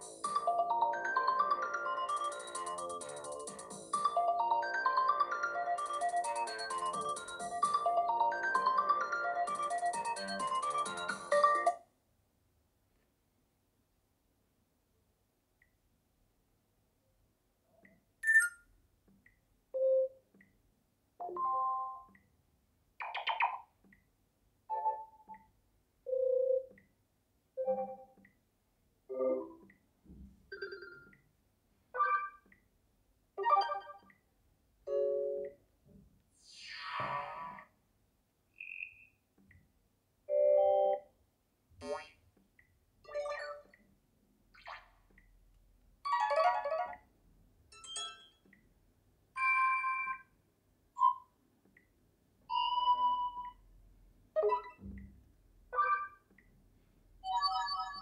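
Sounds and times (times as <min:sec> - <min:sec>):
phone notification chimes: 0:18.2 - 0:18.6.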